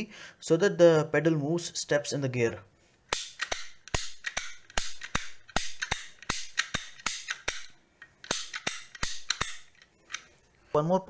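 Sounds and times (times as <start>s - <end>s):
pipe cutter ratchet clicking: 3.1s - 9.8s.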